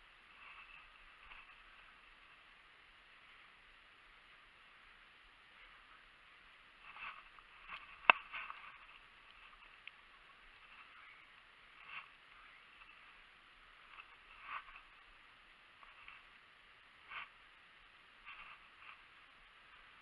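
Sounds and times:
muffled rustling and handling: 6.8 - 17.5, 18.1 - 20.0.

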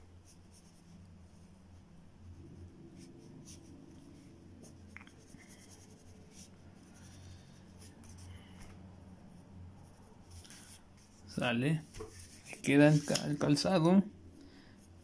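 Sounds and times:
low steady hum: 0.0 - 15.0
pencil scratching on paper: 0.2 - 1.5, 2.2 - 8.2.

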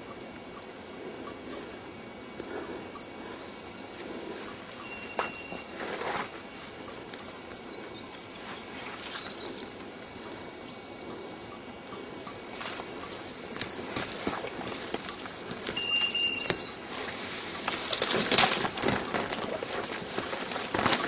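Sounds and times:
small birds chirping: 0.0 - 5.8, 6.7 - 21.0
twigs crackling: 12.5 - 21.0
footsteps in dry leaves: 12.6 - 21.0.

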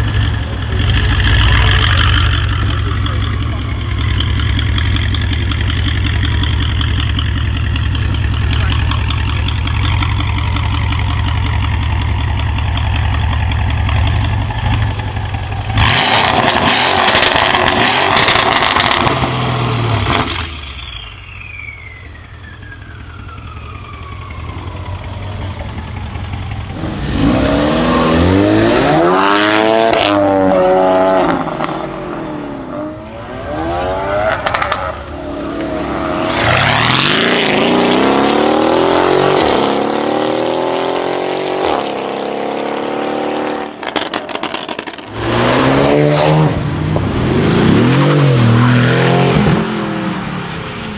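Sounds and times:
car engine revving: 0.0 - 20.6, 25.3 - 50.9
cars accelerating through gears: 15.8 - 20.4, 26.8 - 50.6
falling whistle: 20.8 - 24.7.

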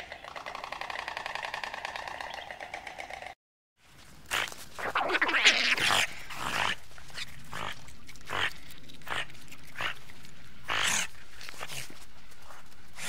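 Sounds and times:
otters squealing and chirping: 4.3 - 10.1.

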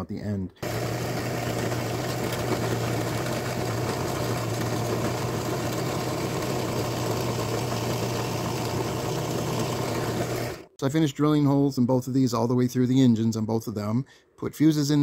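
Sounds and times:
drill press humming: 0.6 - 10.7.

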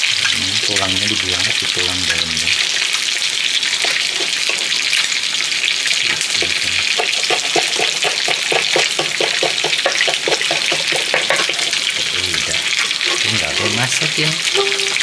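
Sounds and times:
knife chopping on wooden board: 7.0 - 11.5.

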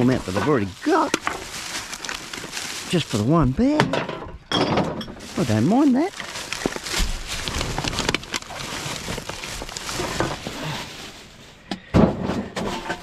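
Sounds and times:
rubbish rustling in a dumpster: 0.0 - 13.0
clinks and knocks: 3.7 - 5.3.

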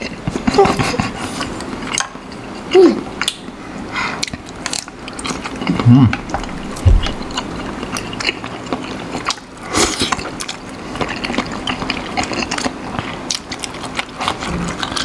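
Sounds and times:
noodles slurped and chewed: 4.1 - 15.0.

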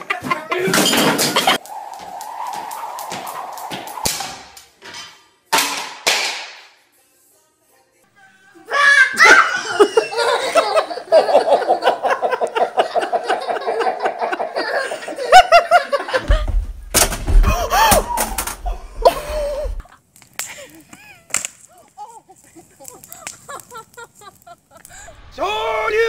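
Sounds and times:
high-pitched laughter: 8.7 - 16.3, 20.6 - 24.9.

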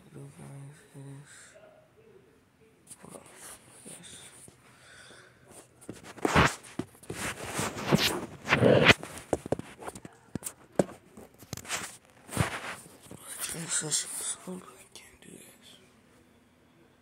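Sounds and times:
microphone rubbing and bumping: 5.8 - 13.2.

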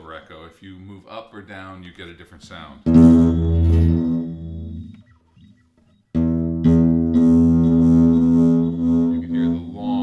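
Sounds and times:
guitar chords with echo: 2.9 - 5.5, 6.1 - 9.8.

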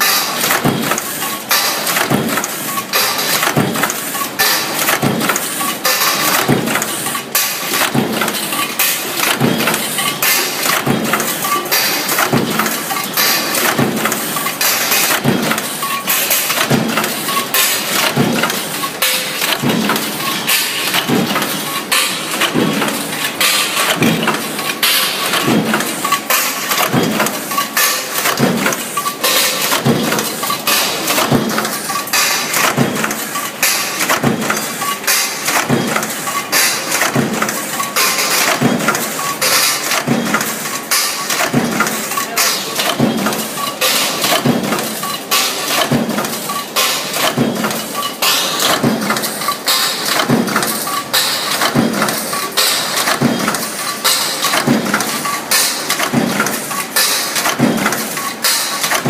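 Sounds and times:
stamping press punching metal: 0.0 - 59.0
steady machine noise: 0.0 - 59.0.

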